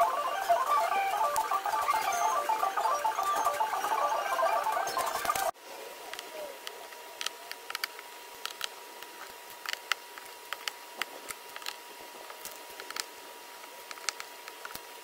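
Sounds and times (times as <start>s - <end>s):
faint steady high tone: 0.0s - 5.5s.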